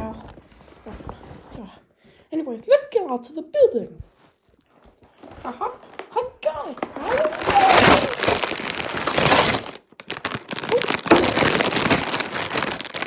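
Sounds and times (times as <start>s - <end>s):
cardboard box crackling and rustling: 5.0s - 13.0s.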